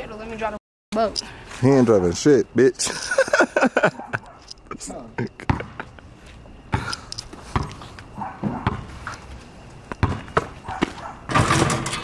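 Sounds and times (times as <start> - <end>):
basketball bouncing on asphalt: 5.4 - 5.8, 6.7 - 11.8.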